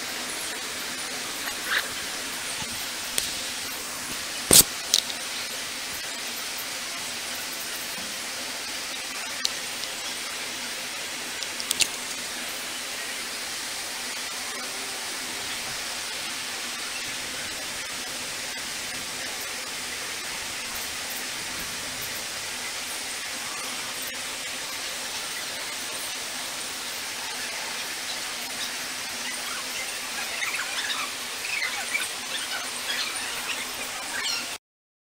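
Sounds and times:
steady hiss: 0.0 - 34.6
sharp click: 4.5 - 5.2.

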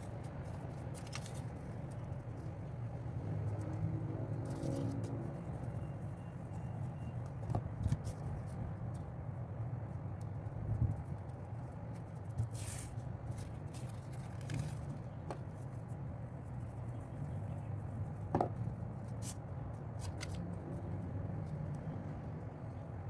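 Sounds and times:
paper rustling: 0.0 - 2.5, 11.9 - 15.7.

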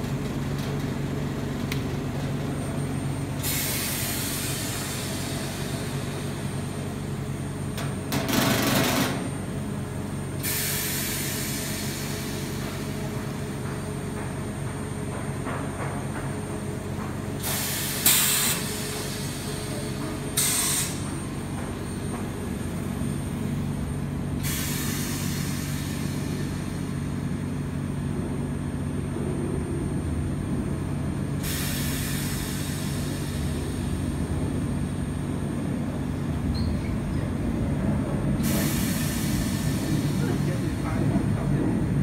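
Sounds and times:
gas hissing: 38.4 - 40.3.

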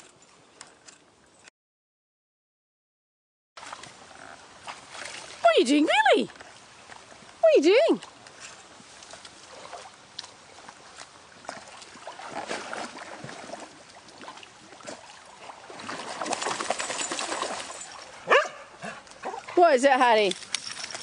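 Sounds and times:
dog splashing through water: 9.0 - 19.5.

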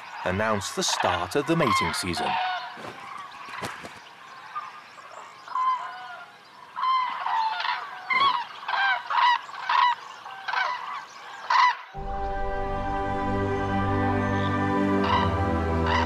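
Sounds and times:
cranes honking calls: 0.8 - 3.2, 5.5 - 16.0.

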